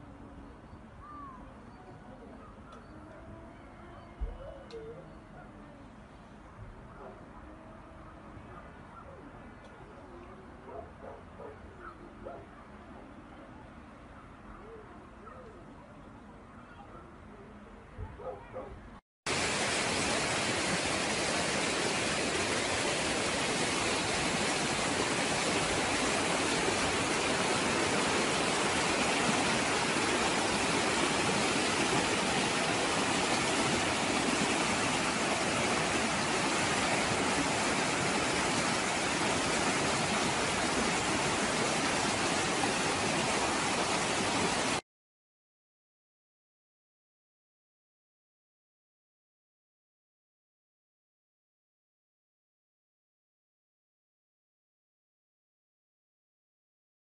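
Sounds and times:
river water rushing over rocks: 19.3 - 44.8.

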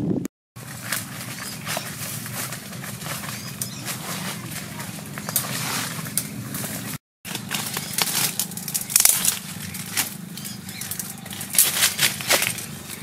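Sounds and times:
dry leaves and brush crackling: 0.6 - 13.0
steady low hum: 0.6 - 13.0
twigs snapping: 7.3 - 13.0.

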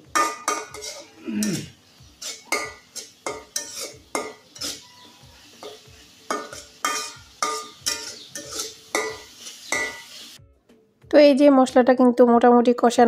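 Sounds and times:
faint sizzle of frying: 0.0 - 10.4
metal spatula scraping pan: 0.0 - 10.4.

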